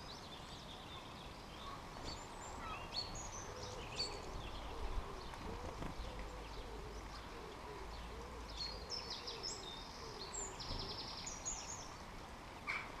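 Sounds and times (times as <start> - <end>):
pigeon cooing: 3.4 - 11.0.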